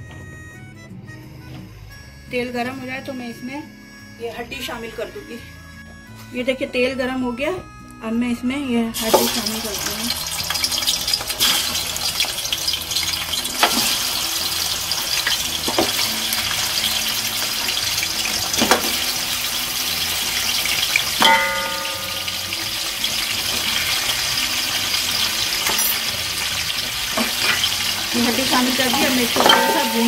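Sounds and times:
bones sizzling in hot oil: 9.0 - 30.0.

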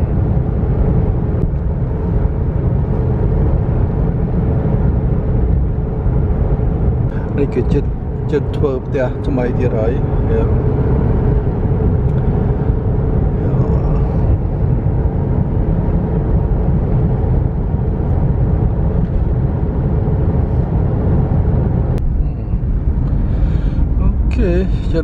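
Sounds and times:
faint steady hum: 0.0 - 25.0
vehicle rumbling: 0.0 - 25.0.

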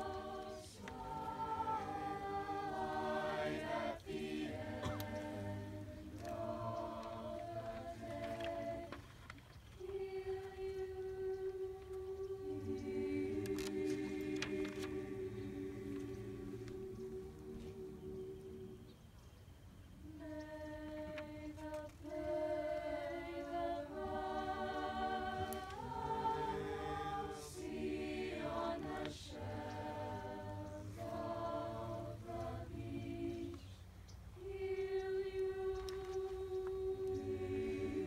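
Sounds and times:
choir singing a cappella: 0.0 - 19.2, 19.9 - 38.0.

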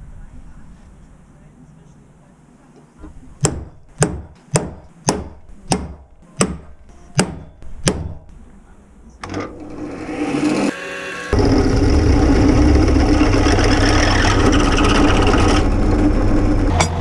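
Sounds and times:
hammer striking centre punch: 3.4 - 8.3
drill press running: 11.4 - 17.0.

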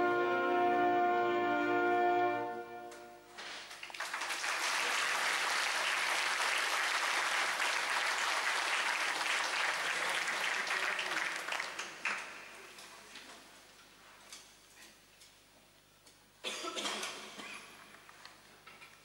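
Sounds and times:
french horn and wind band chord: 0.0 - 3.3
audience applauding: 3.7 - 12.8.

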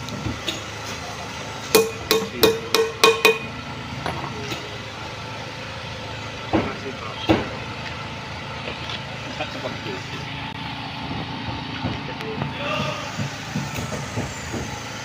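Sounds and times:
hammer striking metal: 1.7 - 3.6
dull knock: 11.2 - 14.8.

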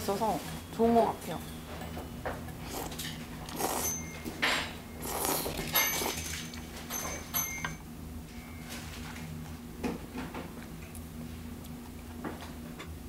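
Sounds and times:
slurping and chewing noodles: 2.6 - 4.0, 5.0 - 6.5.

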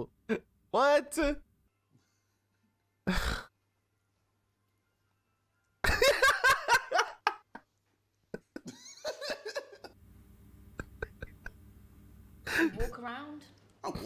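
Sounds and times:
man laughing loudly: 5.8 - 7.6, 8.3 - 10.0, 10.7 - 11.6.

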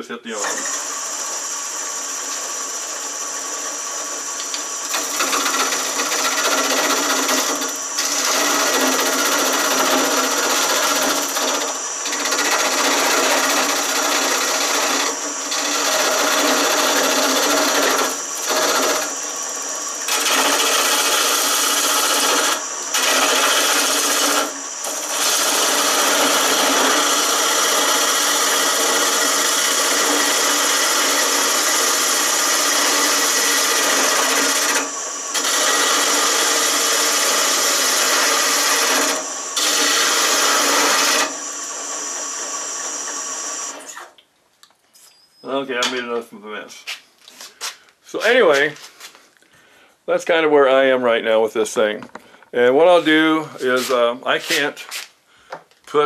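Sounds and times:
turning tool scraping wood: 0.4 - 43.8, 46.8 - 49.4, 51.8 - 55.2
lathe motor whine: 0.4 - 44.1.

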